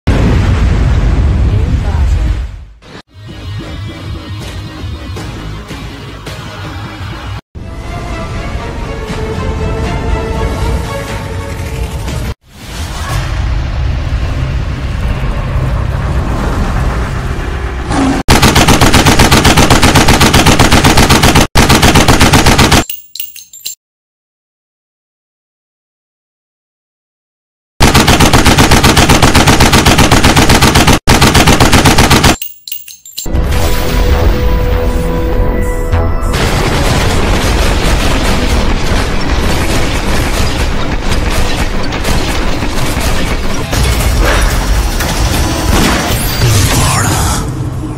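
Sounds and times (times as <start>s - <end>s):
explosions: 0.1s - 2.8s, 36.2s - 47.6s
action trailer music with booms: 0.2s - 18.2s
machine-gun fire: 18.3s - 22.9s, 27.8s - 32.4s, 36.3s - 44.1s
rapid gunfire: 18.3s - 22.9s, 27.8s - 32.4s, 36.4s - 44.5s.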